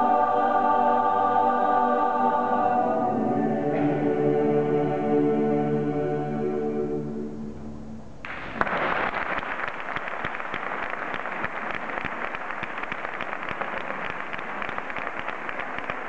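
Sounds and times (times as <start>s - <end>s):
choir singing chord: 0.0s - 8.0s
audience applause: 8.6s - 16.0s.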